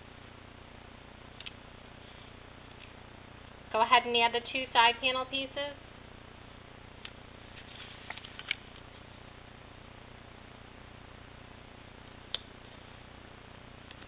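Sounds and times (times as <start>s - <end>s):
low steady hiss: 0.0s - 14.0s
paper rustling: 7.5s - 8.6s.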